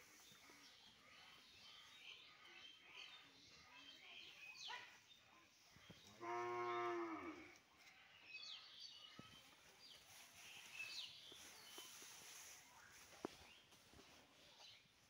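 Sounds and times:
small birds chirping: 0:00.0 - 0:15.0
cow mooing: 0:06.2 - 0:07.4.

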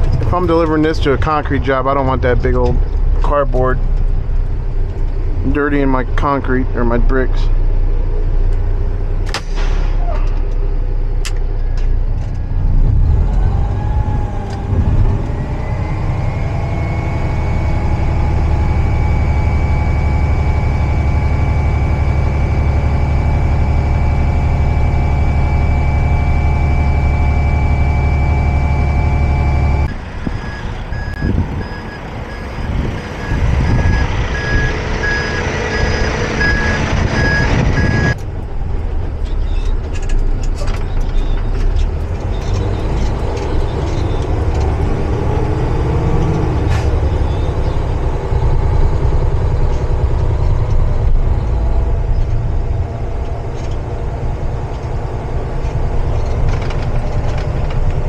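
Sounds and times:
diesel truck engine revving: 0:00.0 - 0:58.0
hydraulic hoist whine: 0:08.6 - 0:58.0
backup alarm beeping: 0:16.2 - 0:38.2.

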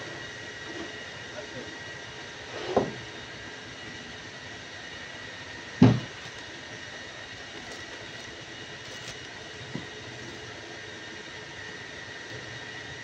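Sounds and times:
workshop machinery drone: 0:00.0 - 0:13.0
plastic stretch film crackling: 0:07.4 - 0:09.6.

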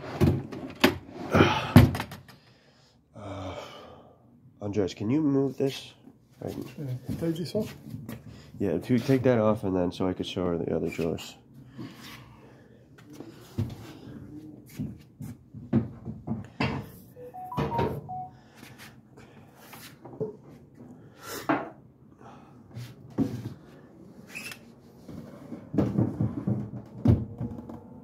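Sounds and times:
wooden drawers knocking and clattering: 0:15.5 - 0:16.9, 0:25.6 - 0:28.0.

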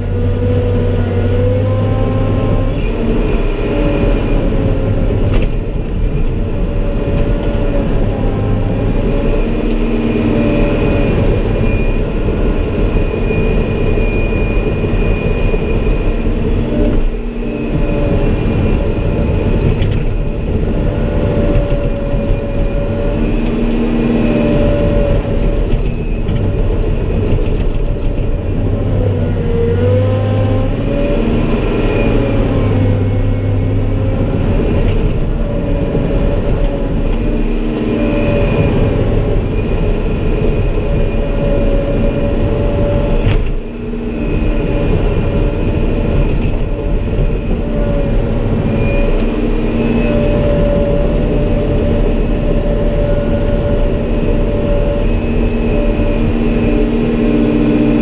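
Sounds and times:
diesel engine running hard: 0:00.0 - 0:58.0
engine whine: 0:00.0 - 0:58.0.

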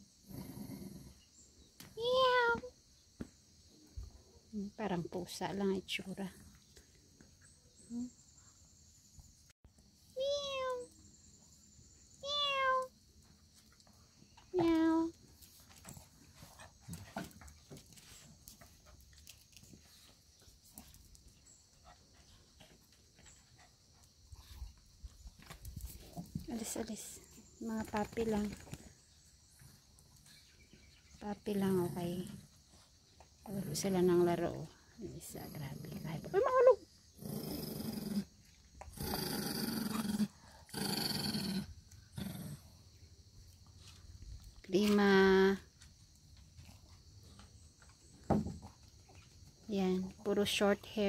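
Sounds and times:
dogs play-growling: 0:00.1 - 0:01.5, 0:15.2 - 0:26.6, 0:35.1 - 0:42.9
puppies scuffling on concrete: 0:13.5 - 0:29.0.

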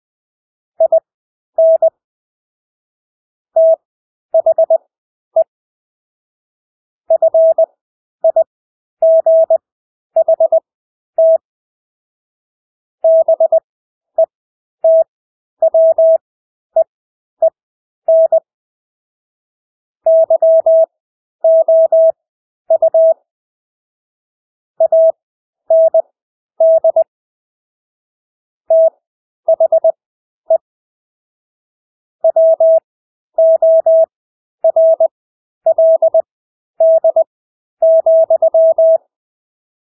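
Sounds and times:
morse code tone: 0:37.8 - 0:39.0.

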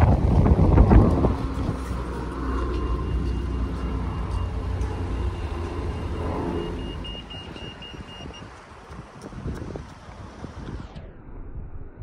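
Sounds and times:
vehicle engine rumble: 0:00.0 - 0:12.0
crossing signal beeping: 0:02.2 - 0:08.6.

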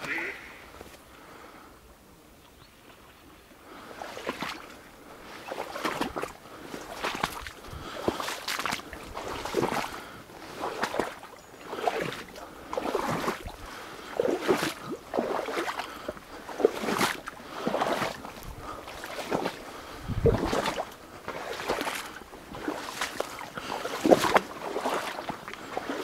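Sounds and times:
wading through marsh water: 0:00.0 - 0:26.0
reed stems swishing: 0:04.0 - 0:26.0.

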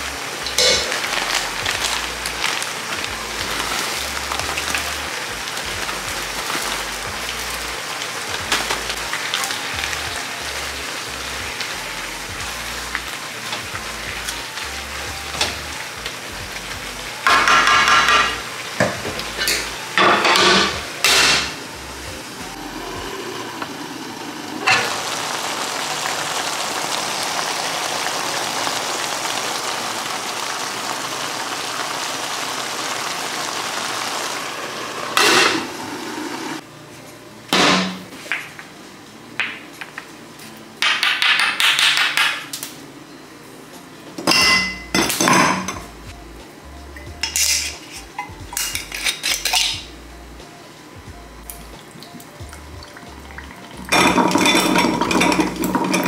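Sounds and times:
frying sizzle: 0:00.0 - 0:36.7, 0:37.5 - 0:56.0
ice cubes clinking into glass: 0:53.9 - 0:56.0.

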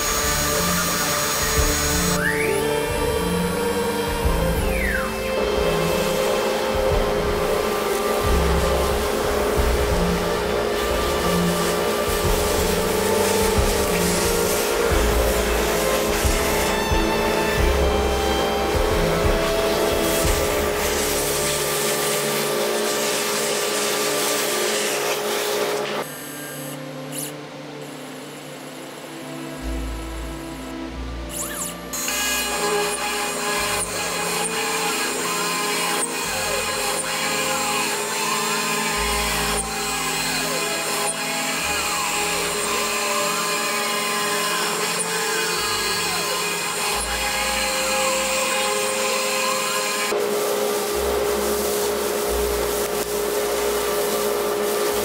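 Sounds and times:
vacuum hose sucking wood chips: 0:00.0 - 0:26.4, 0:31.4 - 0:55.0
faint high whine: 0:00.0 - 0:33.8.

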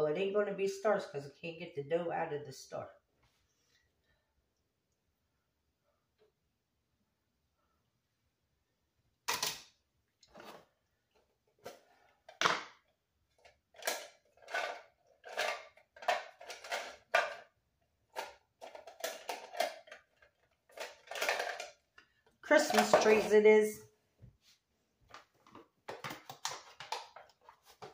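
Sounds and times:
plastic cookie cutters clattering: 0:09.3 - 0:23.6, 0:25.2 - 0:27.9.

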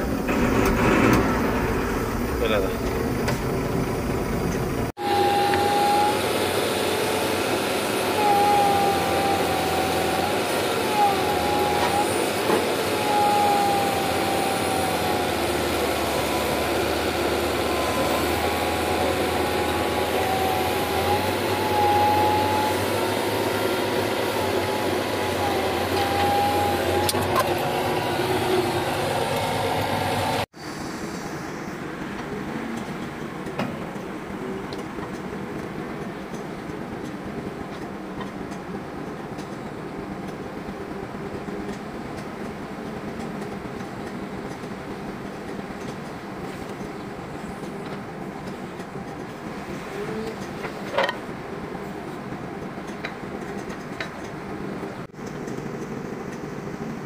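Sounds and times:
high wobbling squeals: 0:00.0 - 0:30.2
dump truck mechanical din: 0:00.0 - 0:30.5
steady engine rumble: 0:00.0 - 0:57.0.

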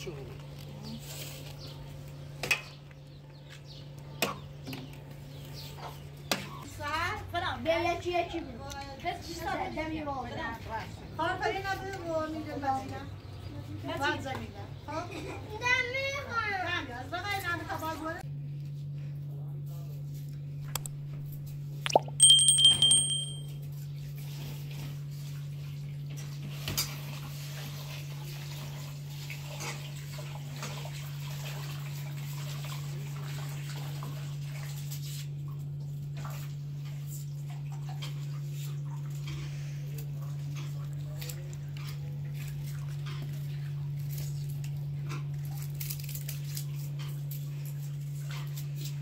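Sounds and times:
small plop into water: 0:21.9 - 0:22.2
bright ringing ding: 0:21.9 - 0:23.6.

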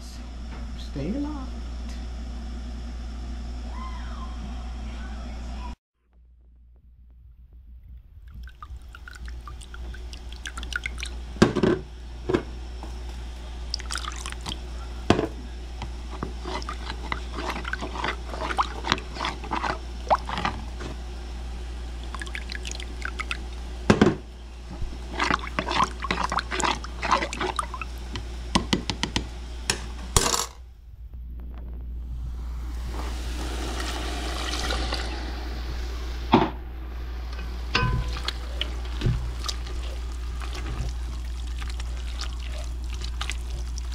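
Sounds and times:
steady low hum: 0:00.0 - 0:43.9
liquid sloshing: 0:08.2 - 0:11.6, 0:13.7 - 0:21.0, 0:21.9 - 0:23.7, 0:24.7 - 0:28.2, 0:37.7 - 0:43.9.

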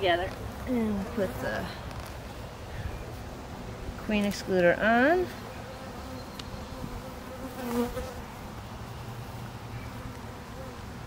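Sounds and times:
honeybees buzzing: 0:00.0 - 0:11.0.

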